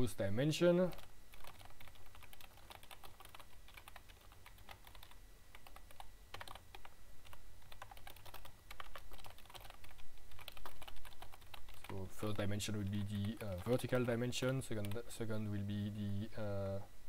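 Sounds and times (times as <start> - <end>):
keyboard typing clicks: 0.9 - 12.0.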